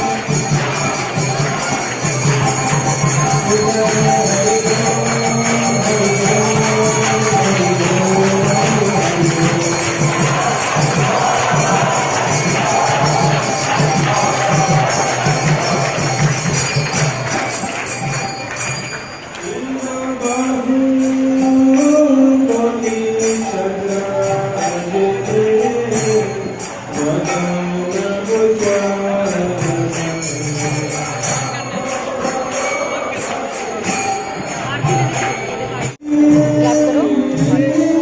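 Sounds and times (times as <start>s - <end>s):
drum beat: 0.0s - 18.3s
hand cymbals clashing: 0.0s - 38.0s
person singing a chant: 2.4s - 16.5s, 36.0s - 38.0s.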